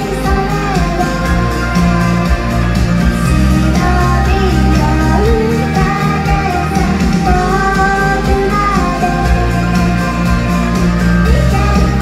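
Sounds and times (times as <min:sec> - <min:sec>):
bass line: 0:00.0 - 0:12.0
drums: 0:00.0 - 0:12.0
woman singing: 0:00.0 - 0:12.0.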